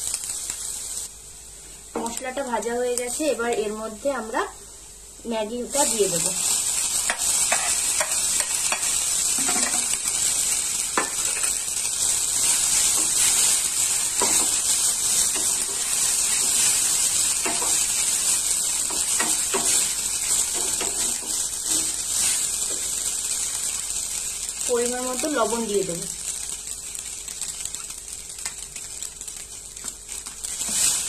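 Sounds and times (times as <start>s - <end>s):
noodles sizzling in oil: 0.0s - 31.0s.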